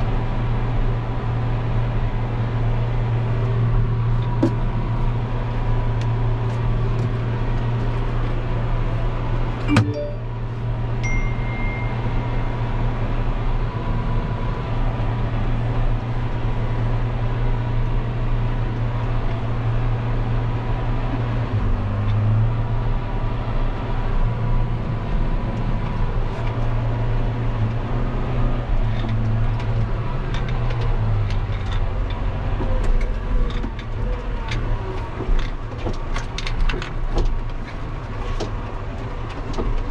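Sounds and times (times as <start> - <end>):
brief high beep: 9.7 - 12.6.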